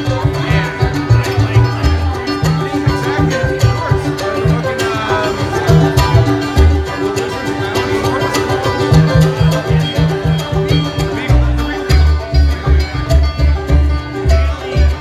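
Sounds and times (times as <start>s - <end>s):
banjo picking: 0.0s - 15.0s
mandolin picking: 0.0s - 15.0s
upright bass line: 0.0s - 15.0s.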